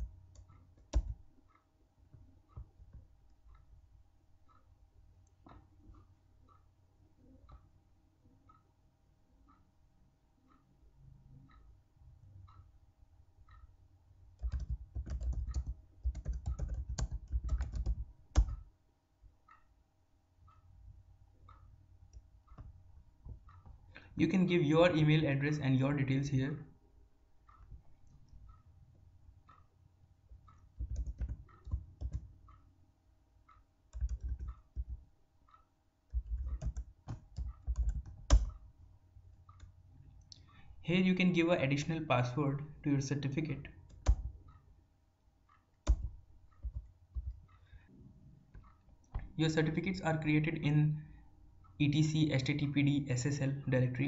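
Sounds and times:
typing on computer keyboard: 0:00.0 - 0:01.3, 0:14.4 - 0:18.7, 0:30.8 - 0:32.3, 0:33.9 - 0:35.0, 0:36.1 - 0:38.6, 0:43.9 - 0:44.3, 0:45.8 - 0:47.4.

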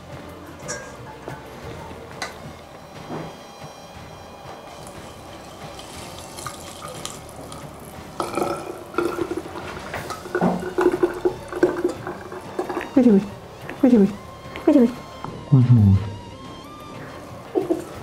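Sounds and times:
liquid pouring and splashing: 0:04.8 - 0:13.0.

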